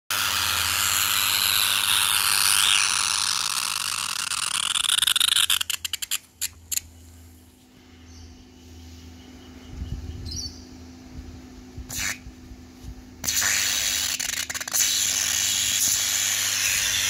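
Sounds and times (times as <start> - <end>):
electric arc hissing and crackling: 0.1 - 6.2, 13.2 - 17.0.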